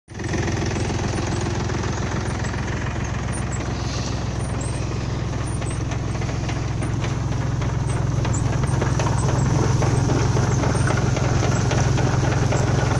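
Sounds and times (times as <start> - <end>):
tractor diesel engine running: 0.1 - 12.9
rapid even knocking: 5.2 - 12.9.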